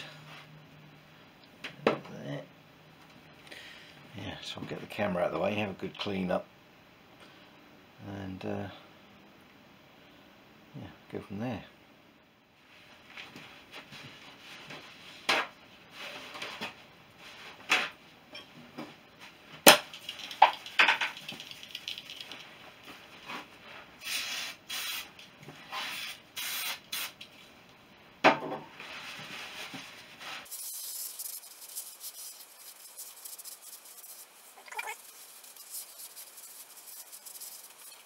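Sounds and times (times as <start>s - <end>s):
aerosol spray hissing: 30.4s - 38.0s.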